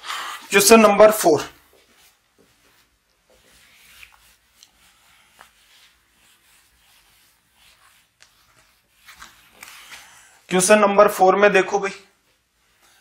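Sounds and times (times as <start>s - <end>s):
eraser wiping whiteboard: 1.9s - 10.2s.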